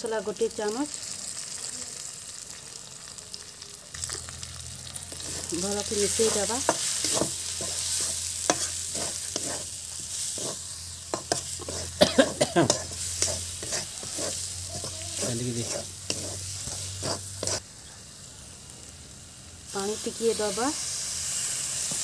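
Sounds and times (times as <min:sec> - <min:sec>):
masala sizzling in hot oil: 0:00.0 - 0:22.0
metal spatula scraping a pan: 0:05.1 - 0:17.6.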